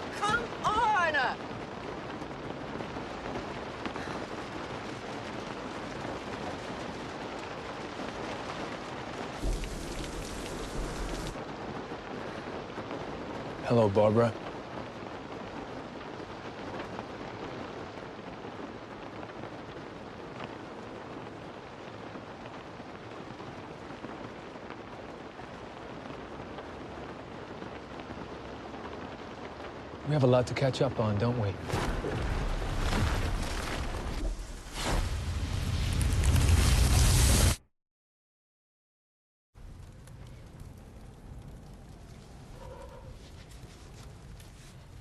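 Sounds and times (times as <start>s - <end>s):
heavy rain on car roof: 0.0s - 34.4s.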